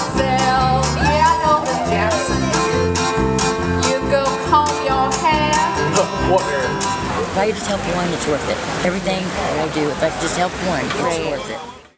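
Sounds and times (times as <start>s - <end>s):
person singing: 0.0s - 3.0s, 3.8s - 6.8s
accordion: 0.0s - 8.3s
electric bass: 0.0s - 10.0s
strummed acoustic guitar: 0.0s - 11.6s.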